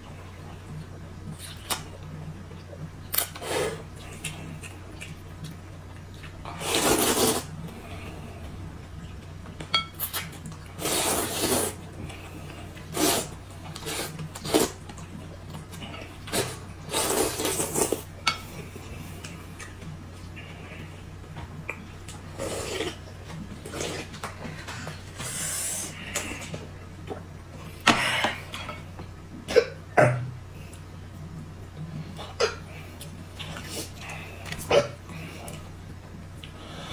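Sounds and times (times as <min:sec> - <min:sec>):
low steady hum: 0:00.0 - 0:36.9
slurping noodles and broth: 0:06.5 - 0:08.2, 0:10.0 - 0:14.8, 0:16.0 - 0:18.1, 0:22.4 - 0:23.0.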